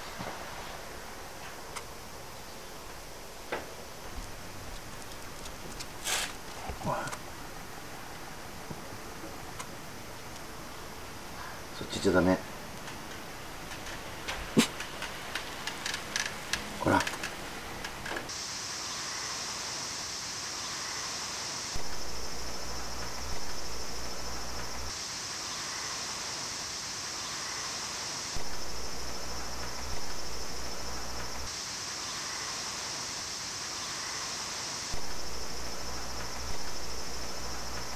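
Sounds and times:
insects chirring: 0:00.0 - 0:37.9
low hum: 0:21.8 - 0:24.9, 0:28.4 - 0:31.5, 0:34.9 - 0:37.9.

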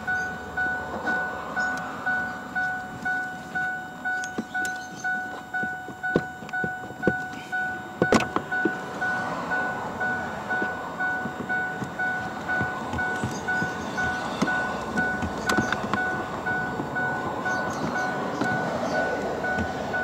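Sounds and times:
two-tone electronic warning chime: 0:00.0 - 0:20.0
knocks and clicks of plastic trim: 0:12.6 - 0:16.9.

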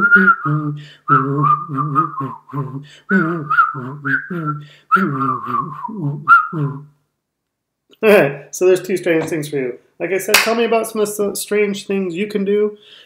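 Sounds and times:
man humming: 0:00.0 - 0:06.9
man whistling a tune: 0:00.0 - 0:06.9.

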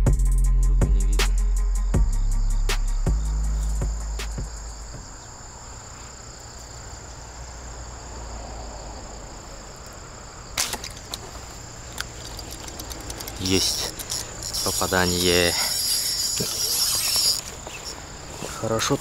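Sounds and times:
crickets chirping: 0:00.0 - 0:19.0
slingshot snap: 0:10.6 - 0:11.2
small clicks: 0:11.9 - 0:15.0.

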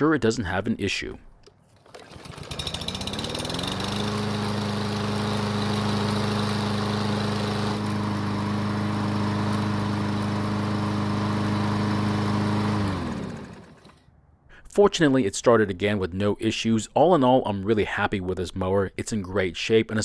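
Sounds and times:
lawn mower engine running: 0:01.5 - 0:14.1.

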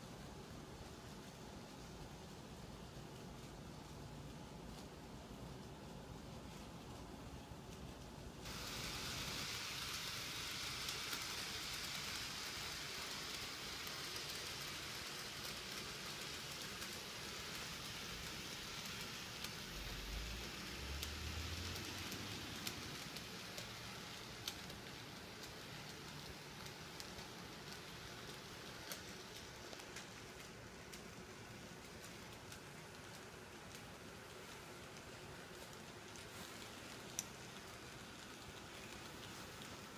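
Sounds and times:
model train motor whirring: 0:08.5 - 0:39.9.

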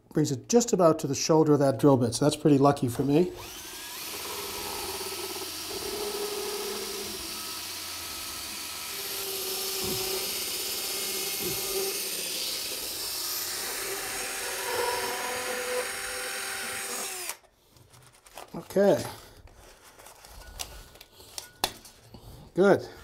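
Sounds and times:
cordless drill whirring: 0:03.3 - 0:17.5.

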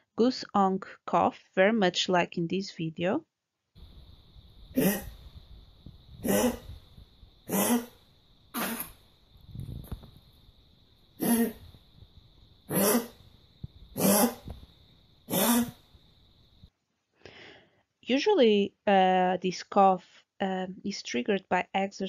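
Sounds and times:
dog honking cough: 0:04.8 - 0:05.1, 0:06.2 - 0:06.6, 0:07.5 - 0:07.9, 0:08.6 - 0:08.9, 0:11.2 - 0:11.6, 0:12.7 - 0:13.1, 0:14.0 - 0:14.4, 0:15.3 - 0:15.8.

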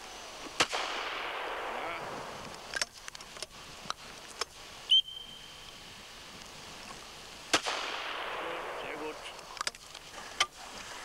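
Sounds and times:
shotgun metallic clicks: 0:02.4 - 0:04.5, 0:09.3 - 0:10.6
high whistle note: 0:04.9 - 0:05.8.

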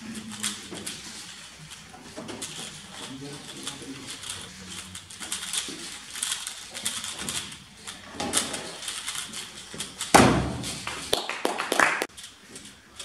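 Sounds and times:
loud thump: 0:10.1 - 0:10.8.

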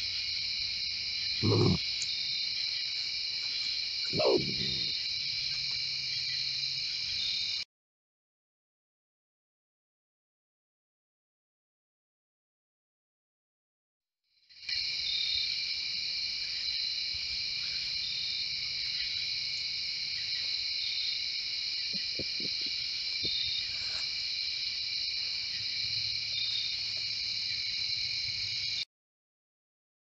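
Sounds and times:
insects trilling: 0:00.0 - 0:07.6, 0:14.6 - 0:28.8
short insect chirp: 0:00.0 - 0:07.6, 0:14.7 - 0:28.8.

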